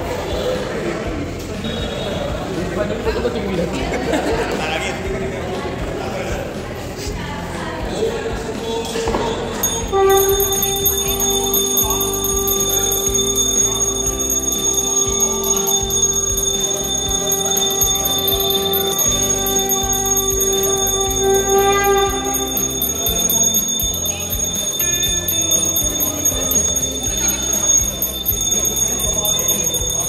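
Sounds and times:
high ringing tone: 0:09.2 - 0:30.0
music with long held note: 0:09.4 - 0:30.0.

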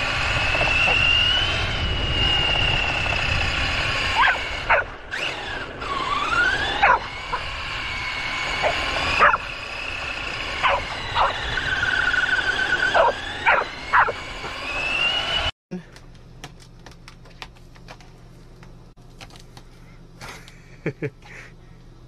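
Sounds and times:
toy car motor whining: 0:00.0 - 0:15.5
dogs yipping barks: 0:04.1 - 0:05.0, 0:06.7 - 0:07.5, 0:08.5 - 0:09.5, 0:10.6 - 0:14.2.

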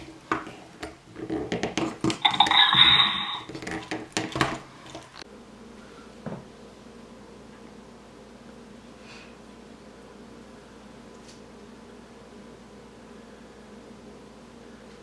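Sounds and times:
quiet steady hum: 0:00.0 - 0:15.0
toy figures clattering on table: 0:01.6 - 0:04.6.

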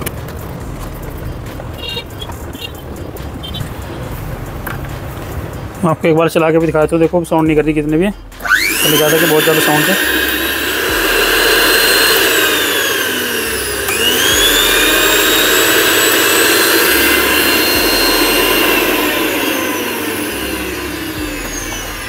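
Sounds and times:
mixer grinder motor whining: 0:08.4 - 0:22.0.

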